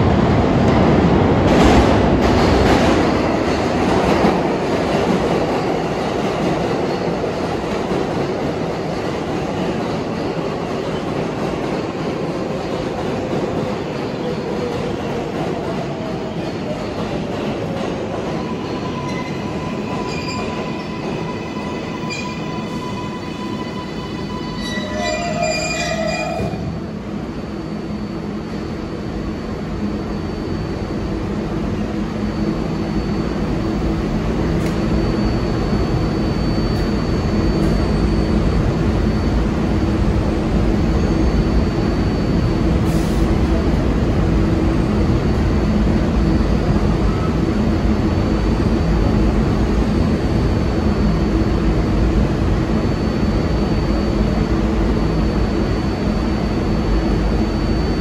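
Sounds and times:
subway train rumbling: 0.0 - 58.0.

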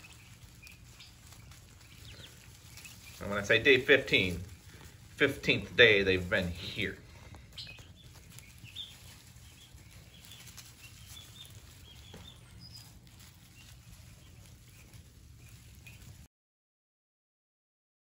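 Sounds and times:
low steady hum: 0.0 - 16.3
turkey poults peeping: 0.0 - 16.3.

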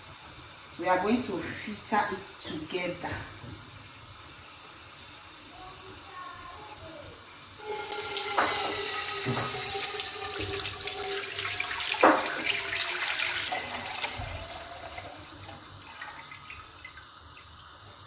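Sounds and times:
liquid pouring into pot: 7.6 - 18.0
knocks: 8.3 - 9.7, 12.0 - 12.6.

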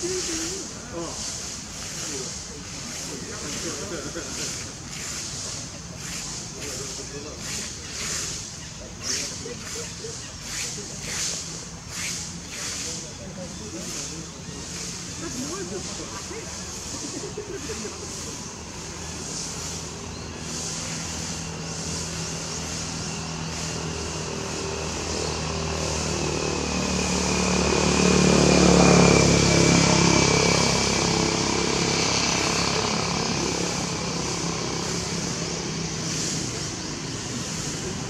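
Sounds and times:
motor engine passing by: 0.0 - 38.0.

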